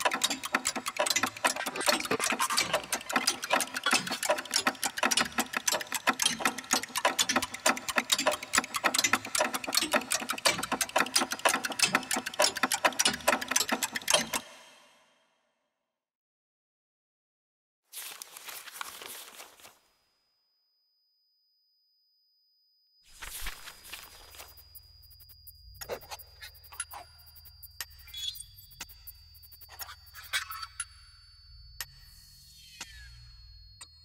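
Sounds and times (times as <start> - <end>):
fast mechanical clicking: 0.0 - 14.6.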